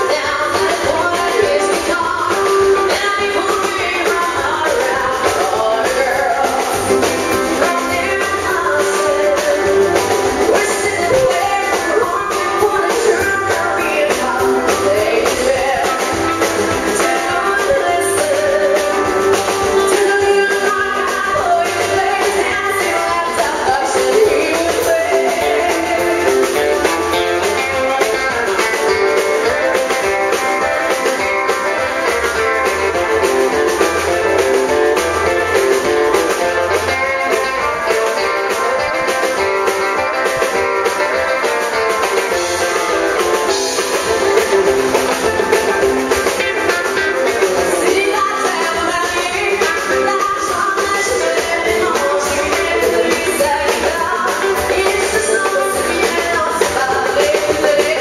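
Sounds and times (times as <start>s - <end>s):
drums: 0.0s - 58.0s
electric guitars: 0.0s - 58.0s
woman singing: 0.0s - 58.0s.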